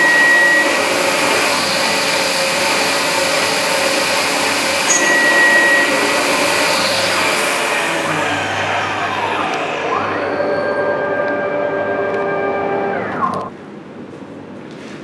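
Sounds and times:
mill spindle cutting metal: 0.0 - 13.5
thin high whistle: 4.9 - 6.3.

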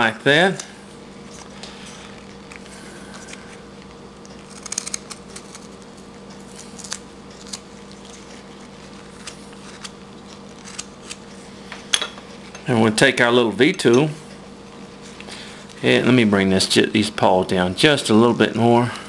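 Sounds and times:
low steady hum: 0.0 - 19.0
knife scraping wood: 6.4 - 11.4.

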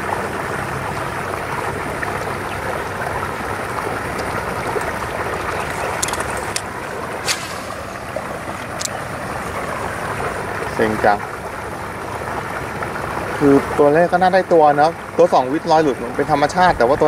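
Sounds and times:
steady rushing outdoor noise: 0.0 - 17.0
short sharp clicks: 6.0 - 7.9.

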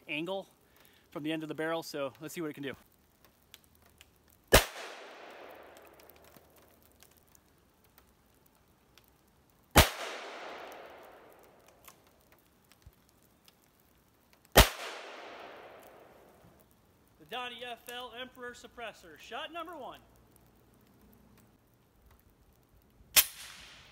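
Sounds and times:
echo off woods: 3.6 - 23.9
air rifle shots: 4.5 - 5.7, 9.8 - 11.3, 14.6 - 15.8, 23.2 - 23.9.

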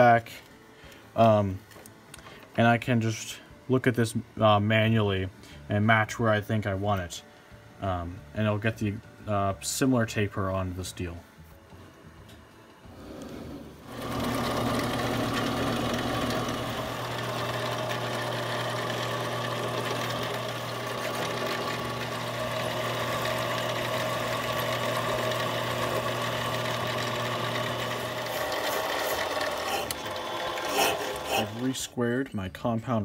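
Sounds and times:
lathe motor and gear hum: 12.8 - 31.8.

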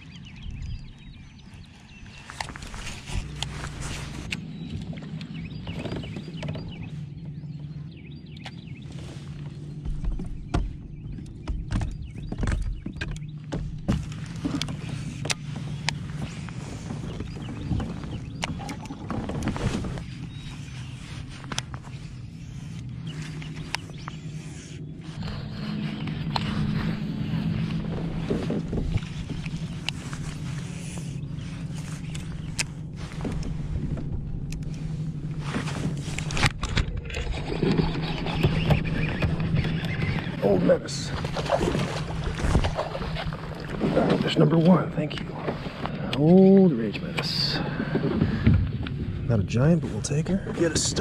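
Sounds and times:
steady low hum: 0.0 - 51.0
fishing gear clicking and knocking: 9.8 - 20.0.

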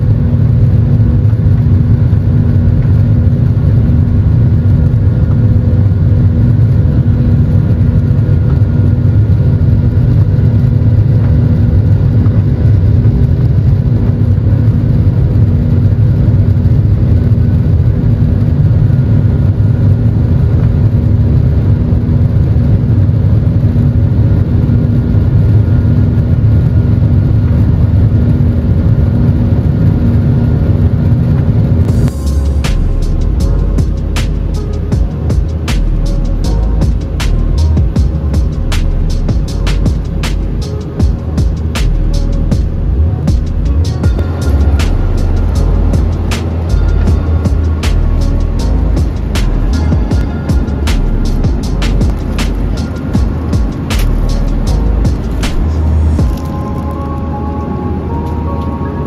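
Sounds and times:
faint humming tones: 0.0 - 59.0
jet engine rumble: 0.0 - 59.0
rushing airflow: 31.4 - 59.0.

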